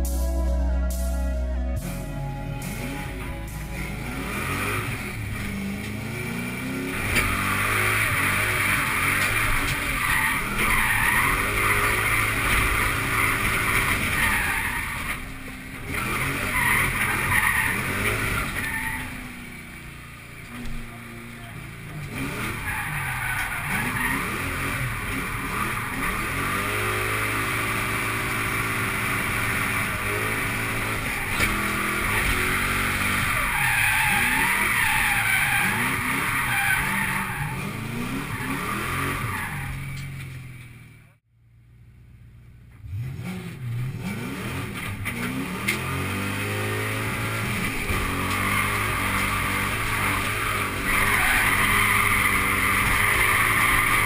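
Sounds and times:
car engine revving: 1.8s - 41.2s, 42.6s - 54.0s
tyres squealing: 29.3s - 40.2s, 47.3s - 54.0s.

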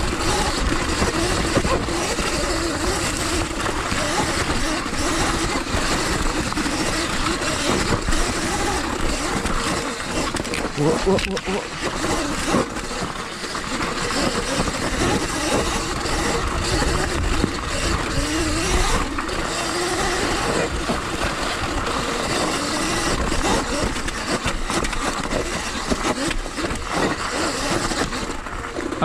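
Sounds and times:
electric motor and chain whine: 0.0s - 29.0s
wind and ground rumble: 11.6s - 29.0s.

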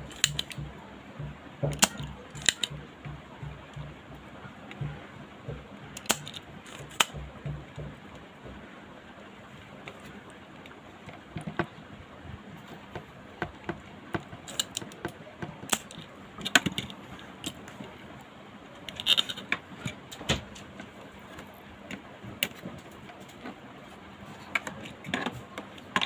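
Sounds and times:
desoldering pump snaps: 0.0s - 0.7s, 1.6s - 2.8s, 6.0s - 7.3s, 14.4s - 17.6s.

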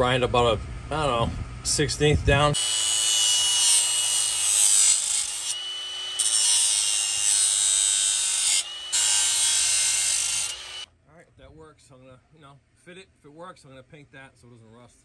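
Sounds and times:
angle grinder grinding metal: 2.6s - 10.9s.

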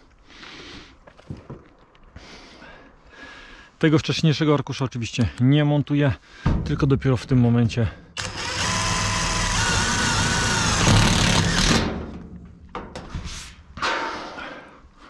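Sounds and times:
impact driver hammering screw into metal: 8.2s - 12.0s.

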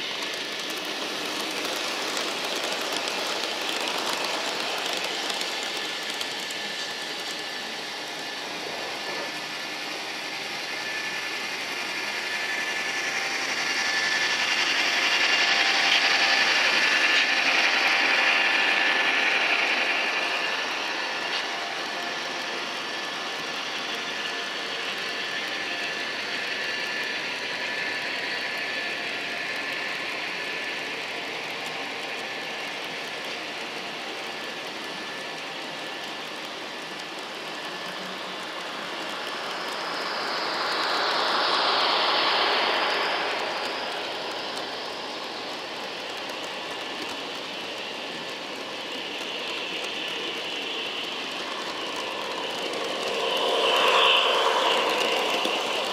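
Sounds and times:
model train wheels rattling: 0.0s - 8.0s, 34.4s - 55.9s.

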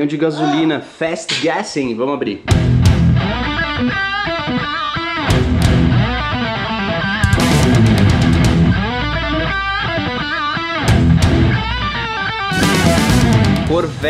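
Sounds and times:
upbeat rock music with electric guitar: 2.5s - 14.0s
sharp strikes: 7.3s - 8.2s, 12.5s - 13.8s.

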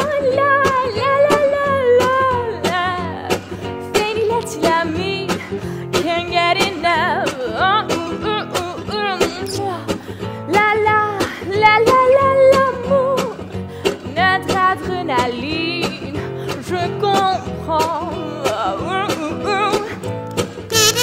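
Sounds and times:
girl singing: 0.0s - 5.4s, 6.0s - 9.9s, 10.5s - 13.4s, 14.0s - 20.0s
instrumental accompaniment: 20.2s - 21.0s.

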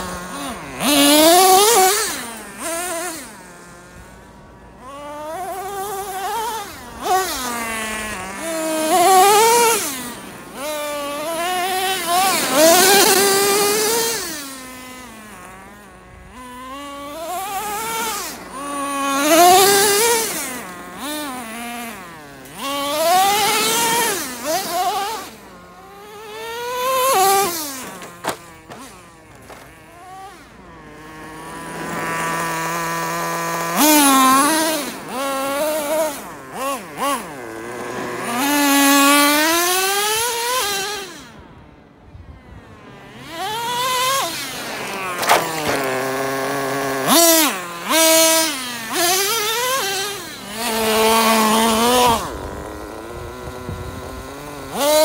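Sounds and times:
model car engine revving: 0.0s - 55.0s.

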